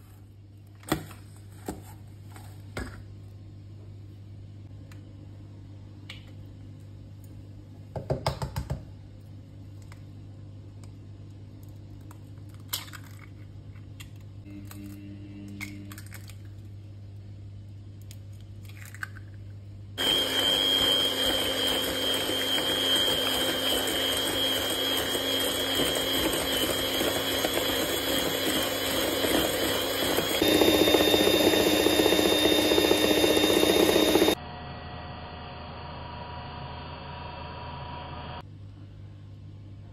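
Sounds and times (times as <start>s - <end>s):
electric hand mixer whirring: 20.0s - 34.4s.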